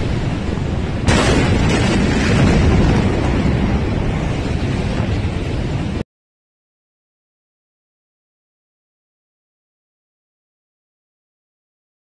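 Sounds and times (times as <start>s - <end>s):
deep rumble: 0.0s - 6.0s
explosion boom: 1.0s - 6.0s.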